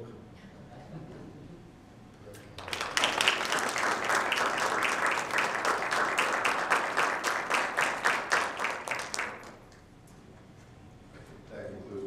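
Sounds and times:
audience applauding: 2.6 - 9.8.

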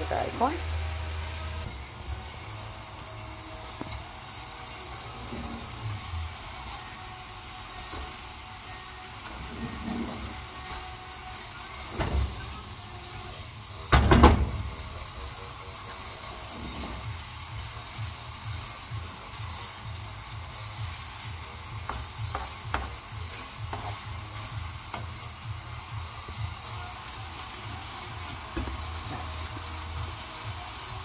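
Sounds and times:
chicken sizzling in a pan: 0.0 - 31.0
utensil stirring: 14.7 - 30.1.

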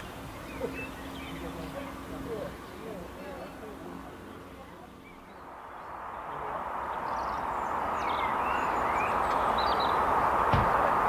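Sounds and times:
steam train rushing noise: 5.4 - 11.0.

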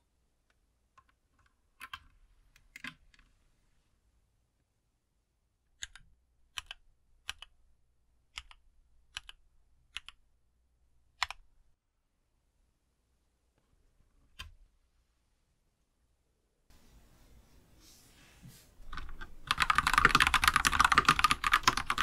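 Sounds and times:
mechanical keyboard keystrokes: 18.9 - 22.0.

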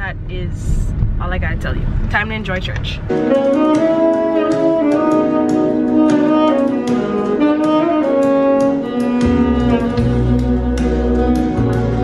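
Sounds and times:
low bass part: 0.0 - 12.0
alto saxophone melody: 3.1 - 12.0.

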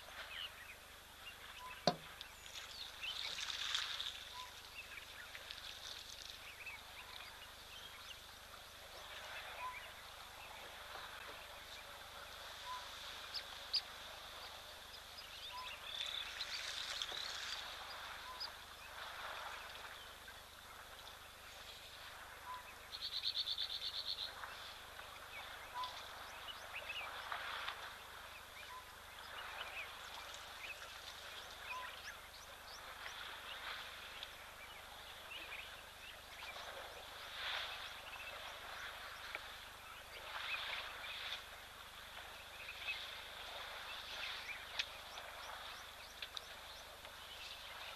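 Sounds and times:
bird calls and chirps: 0.1 - 3.5, 4.2 - 20.2, 22.4 - 27.6, 28.3 - 41.4.

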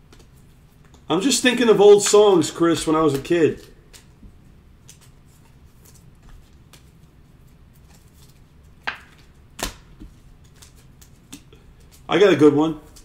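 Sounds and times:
trading cards snapping: 3.1 - 4.2, 7.9 - 12.1.

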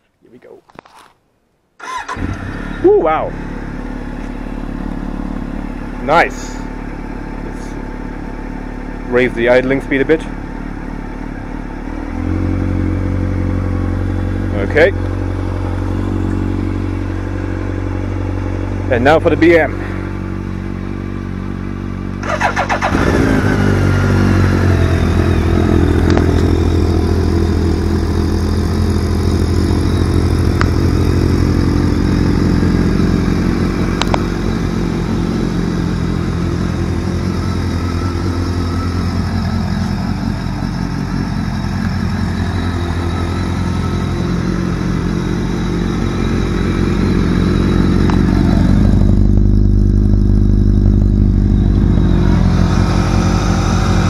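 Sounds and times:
electric starter cranking: 1.8 - 2.7, 22.2 - 23.6
motorcycle engine idling: 1.9 - 54.0
deep loud exhaust note: 2.5 - 22.0, 22.8 - 54.0.

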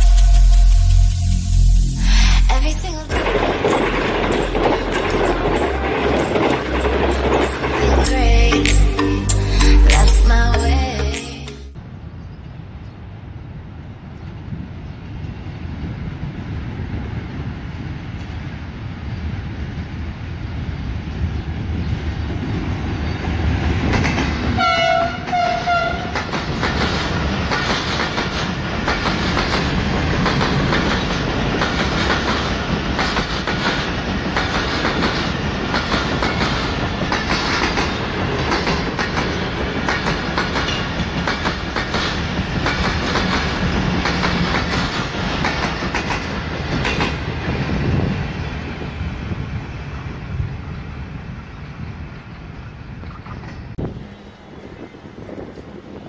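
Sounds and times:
train wheels clacking on rails: 3.1 - 8.8, 23.1 - 50.1
train horn blasts: 24.6 - 26.2.

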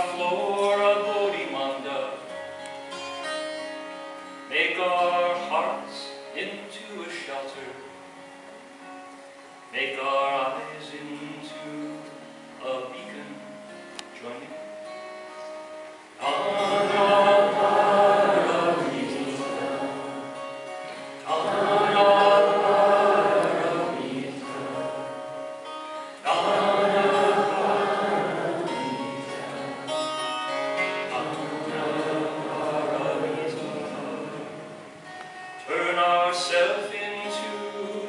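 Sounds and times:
acoustic guitar: 0.0 - 38.0
person singing: 16.2 - 25.3, 26.2 - 38.0.

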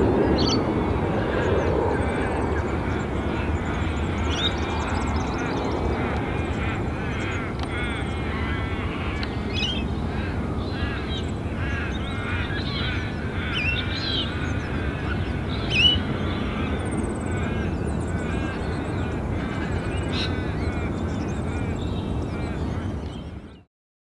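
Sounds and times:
steady low rumble: 0.0 - 23.0
birds chirping and squawking: 0.0 - 23.7.

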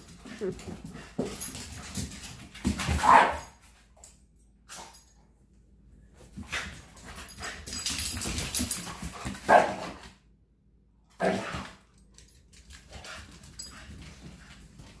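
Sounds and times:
dogs playing noise: 0.0 - 4.1, 6.2 - 10.2, 11.2 - 15.0
dogs barking: 3.0 - 3.5, 9.5 - 9.8.

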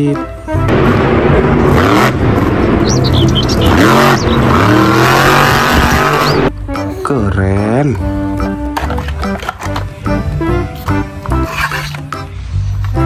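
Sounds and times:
truck engine revving hard: 0.7 - 6.5.

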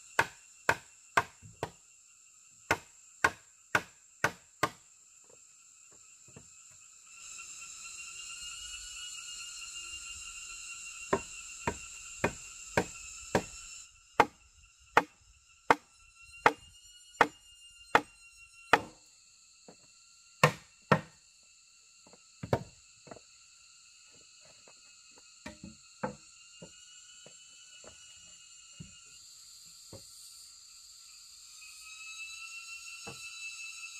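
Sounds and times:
high insect song: 0.0 - 33.9
tool striking wood: 2.7 - 4.8, 11.1 - 13.5, 14.2 - 14.4, 15.0 - 16.6, 18.7 - 19.0, 20.4 - 21.1, 22.4 - 22.7, 25.4 - 26.2.

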